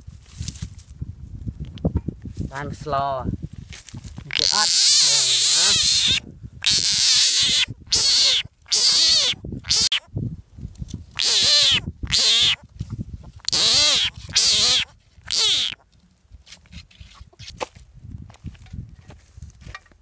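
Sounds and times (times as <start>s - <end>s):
frog distress calls: 4.3s - 10.1s, 11.2s - 12.6s, 13.4s - 15.8s.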